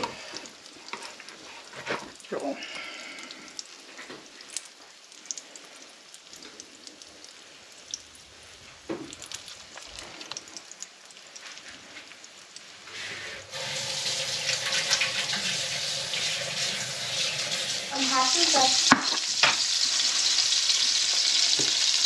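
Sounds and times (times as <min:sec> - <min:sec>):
food sizzling in a pan: 0:11.2 - 0:22.0.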